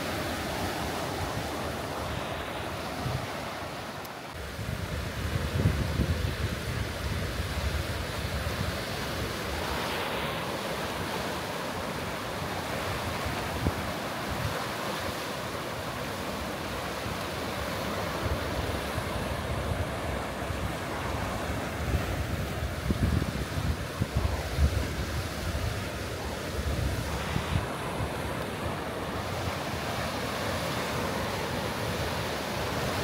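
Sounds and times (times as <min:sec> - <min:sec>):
waves washing over rocks: 0:00.0 - 0:33.0
wind buffeting microphone: 0:04.3 - 0:14.9, 0:16.5 - 0:33.0.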